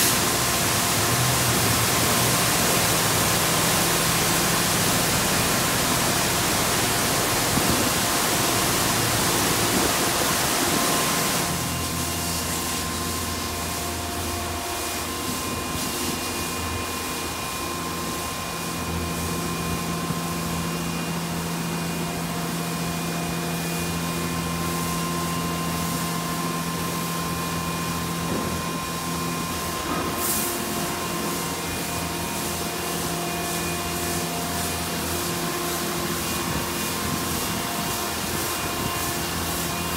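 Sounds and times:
car wash spray hissing: 0:00.0 - 0:20.5, 0:28.6 - 0:39.9
car wash machine hum and whine: 0:00.0 - 0:39.9.

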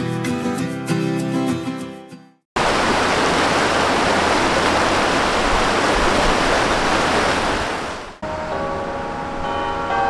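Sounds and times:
stream rushing over rocks: 0:02.6 - 0:08.2.

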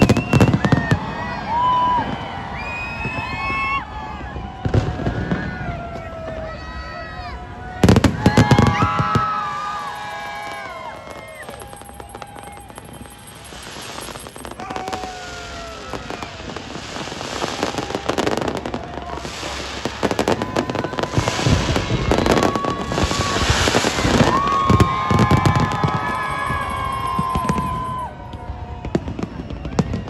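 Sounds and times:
fireworks crackling and hissing: 0:00.0 - 0:30.0
deep firework booms: 0:10.2 - 0:27.7.

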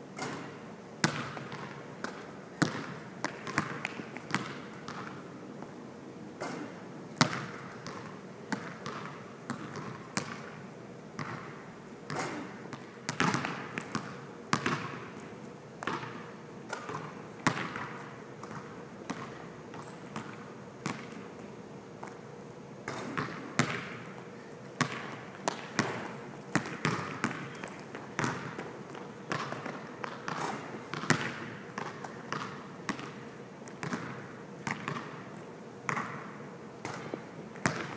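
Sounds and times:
basketball bouncing in a hall: 0:00.1 - 0:05.7, 0:06.4 - 0:37.9.

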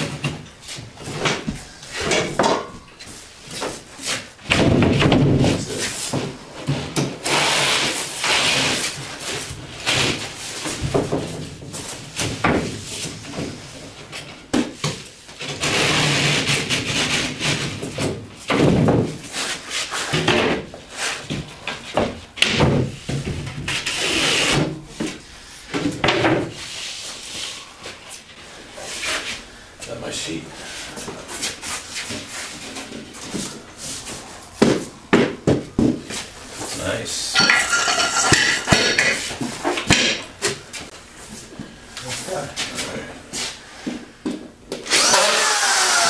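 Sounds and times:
drywall boards scraping: 0:03.0 - 0:29.5.

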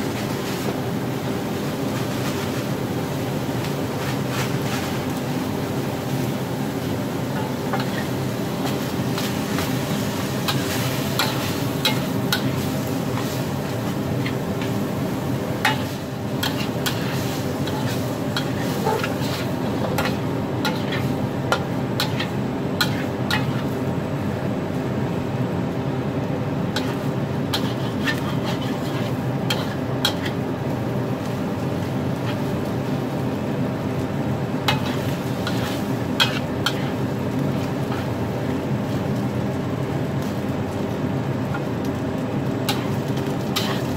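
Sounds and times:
food sizzling in a wok: 0:00.0 - 0:43.9
metal spatula scraping a wok: 0:07.4 - 0:09.8, 0:15.6 - 0:23.7, 0:26.8 - 0:30.4, 0:32.2 - 0:32.6, 0:34.7 - 0:37.0, 0:42.7 - 0:43.9.

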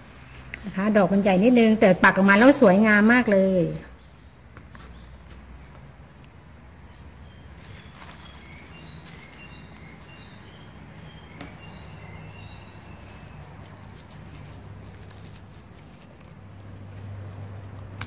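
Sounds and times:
small birds chirping: 0:00.0 - 0:18.0
plastic bag crinkling: 0:07.2 - 0:17.7.

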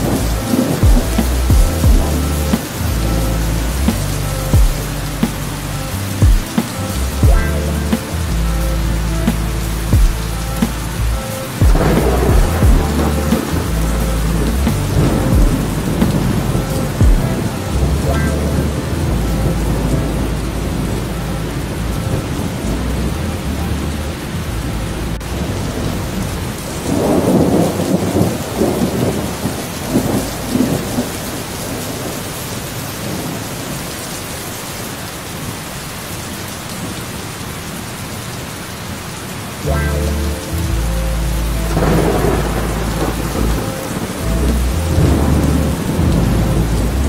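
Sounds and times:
steady rain: 0:00.0 - 0:47.0
rolling thunder: 0:11.6 - 0:17.5, 0:41.7 - 0:47.0.

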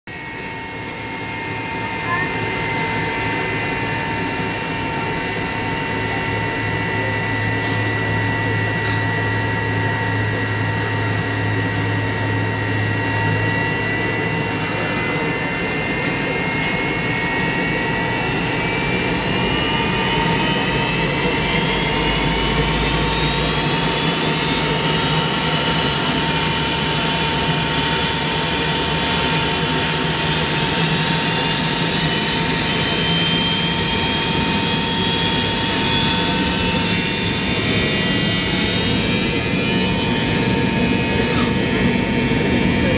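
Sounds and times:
jet engines droning and whining: 0:00.1 - 0:42.9.

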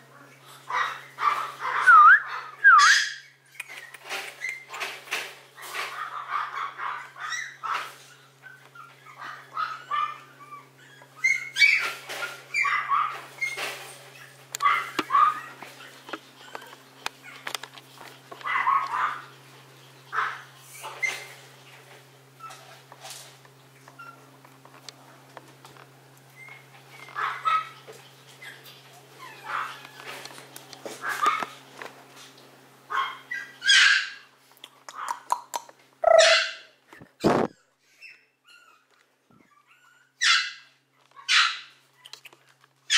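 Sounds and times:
puppy whining and yipping: 0:00.8 - 0:04.9, 0:05.6 - 0:17.6, 0:18.4 - 0:21.5, 0:22.3 - 0:22.8, 0:24.0 - 0:24.3, 0:26.3 - 0:30.4, 0:33.0 - 0:34.2, 0:36.0 - 0:42.9
puppy giving high-pitched barks: 0:12.6 - 0:13.2, 0:14.6 - 0:15.6, 0:32.9 - 0:34.2, 0:36.0 - 0:36.7, 0:40.2 - 0:41.7.

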